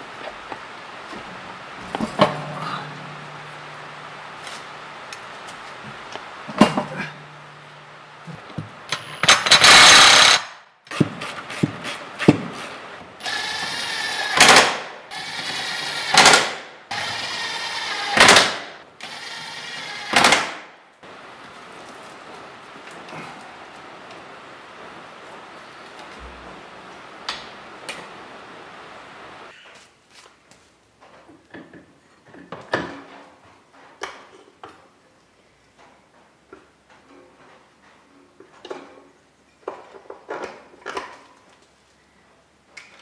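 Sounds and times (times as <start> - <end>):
impact wrench hammering: 8.6 - 12.6.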